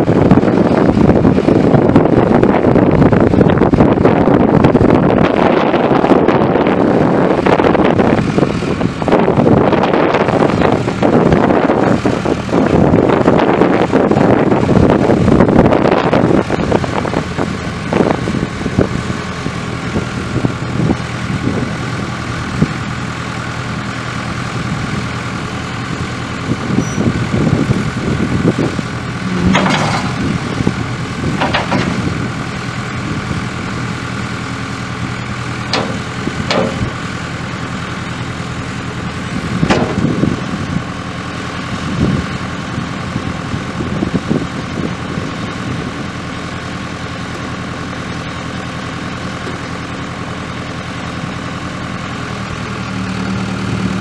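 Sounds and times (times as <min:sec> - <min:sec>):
diesel engine running: 0:00.0 - 0:54.0
sharp knocks: 0:31.4 - 0:32.1, 0:35.7 - 0:37.0.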